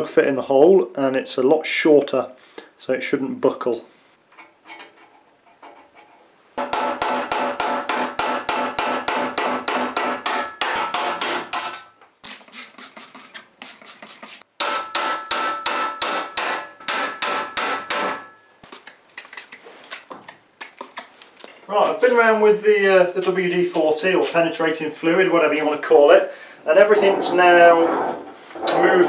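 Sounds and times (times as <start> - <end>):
hammer striking steel punch: 6.6 - 11.9, 14.6 - 18.4.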